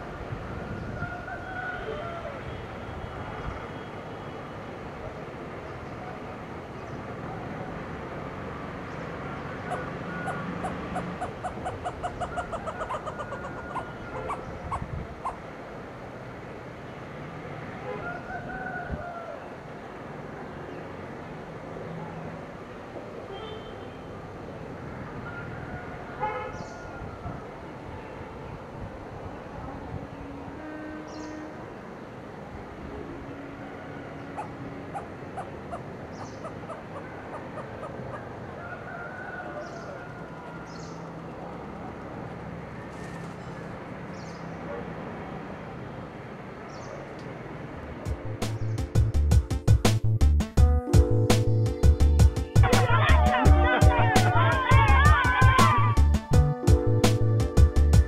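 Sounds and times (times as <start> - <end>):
hornbill calling: 9.5 - 15.5, 34.2 - 38.4, 51.8 - 56.4
bird giving sharp call notes: 52.6 - 56.0.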